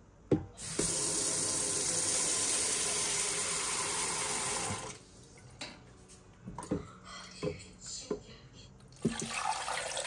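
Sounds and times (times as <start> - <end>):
kitchen tap running: 0.6 - 5.0, 9.0 - 10.0.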